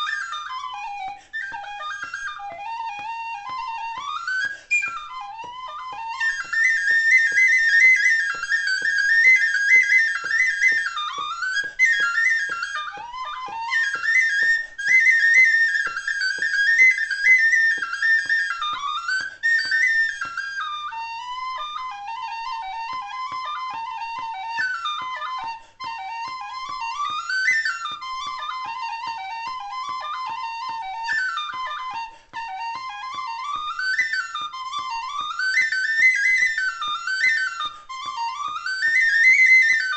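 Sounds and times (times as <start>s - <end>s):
tin whistle playing a reel: 0.0s - 39.9s.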